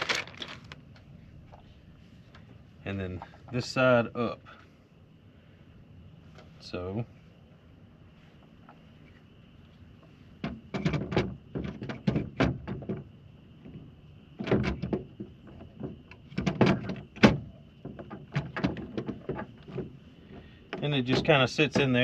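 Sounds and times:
plastic clicks and rattles: 0.0s - 1.0s.

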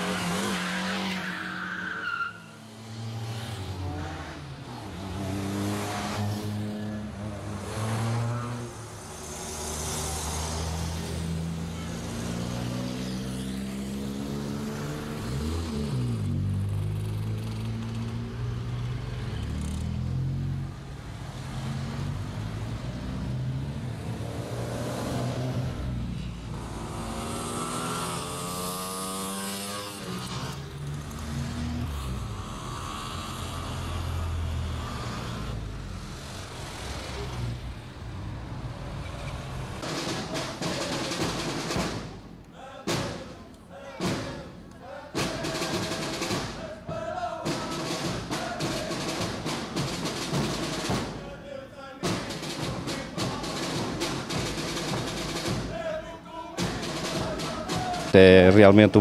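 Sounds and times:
cars driving past accelerating: 2.4s - 42.3s.

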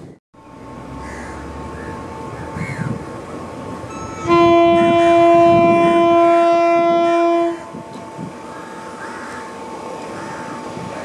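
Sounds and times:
locomotive horn blast: 3.9s - 9.8s.

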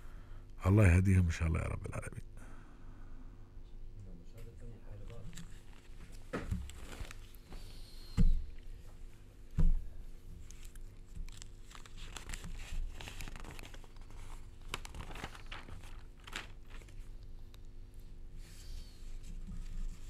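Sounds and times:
faint steady hum: 0.0s - 20.0s
newspaper pages rustling: 5.1s - 7.6s, 10.3s - 17.2s.

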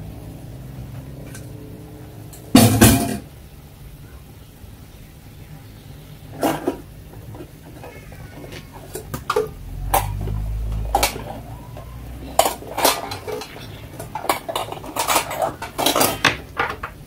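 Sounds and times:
metal pots clattering: 2.3s - 3.3s, 6.3s - 17.0s.

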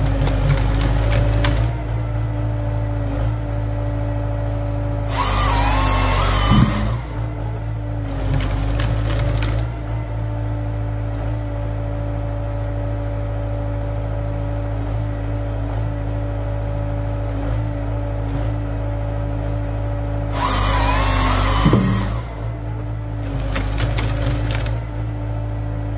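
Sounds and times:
tractor engine humming: 0.0s - 14.8s, 19.3s - 25.9s
hydraulic whine: 5.0s - 9.7s, 20.2s - 25.9s.

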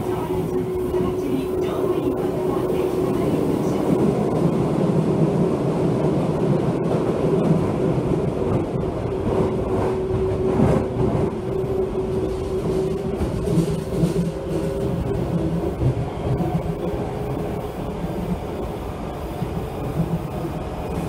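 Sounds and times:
subway wheels rumbling on rail: 0.0s - 21.0s.

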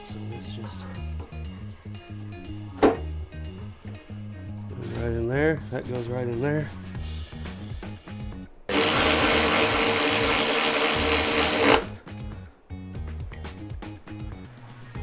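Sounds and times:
background music: 0.0s - 15.0s
power driver whining: 8.7s - 12.0s.

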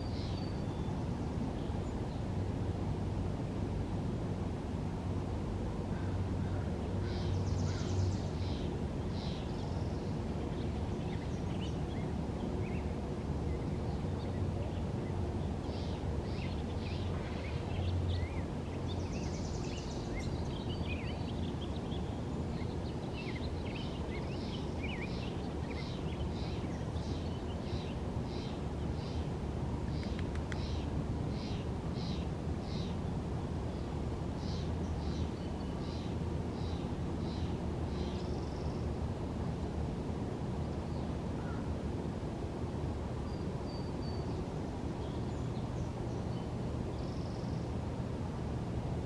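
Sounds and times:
birds chirping and trilling: 6.0s - 12.9s, 15.0s - 29.3s.

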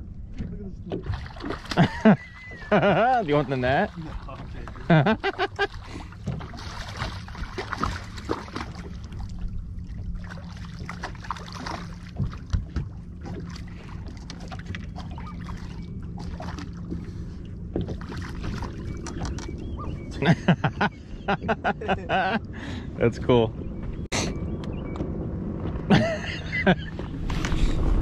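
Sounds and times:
water lapping at hull: 0.0s - 24.4s
steady low hum: 0.0s - 28.0s
short splashes and knocks: 0.3s - 19.6s.

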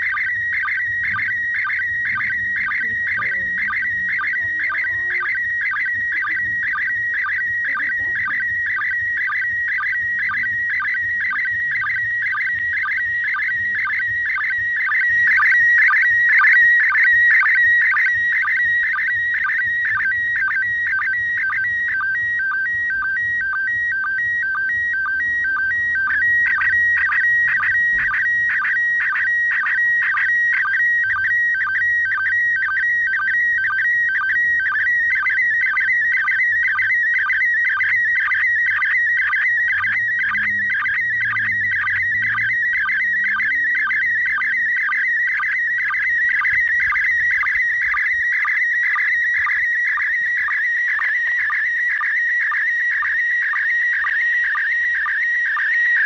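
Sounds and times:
rapid sync beeps: 0.0s - 56.0s
warbling radio tone: 0.0s - 56.0s.

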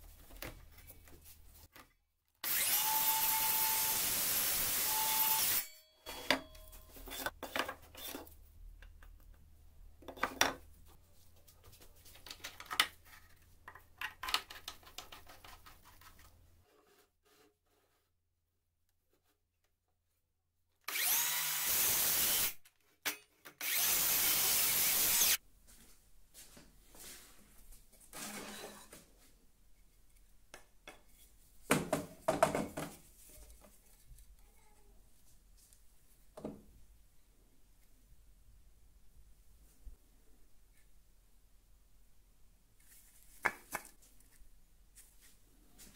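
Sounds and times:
circular saw running: 2.4s - 5.7s, 20.9s - 22.5s, 23.6s - 25.4s
clicks and rattles of wood and metal: 12.0s - 16.3s.

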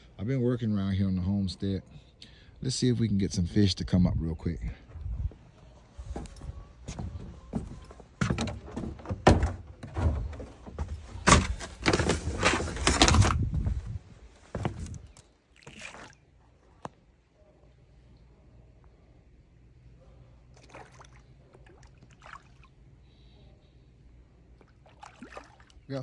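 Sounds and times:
rustling handling noises: 9.8s - 15.3s.

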